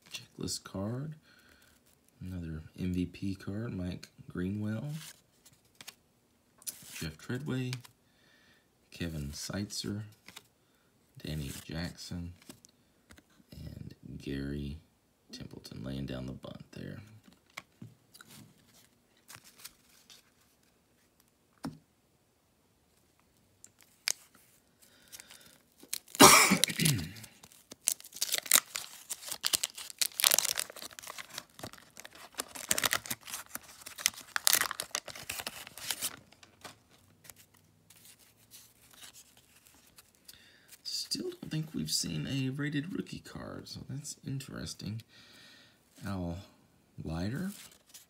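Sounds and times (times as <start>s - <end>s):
wax paper crinkling: 23.7s - 41.1s, 47.4s - 48.0s
wax paper pack ripping: 25.0s - 40.2s.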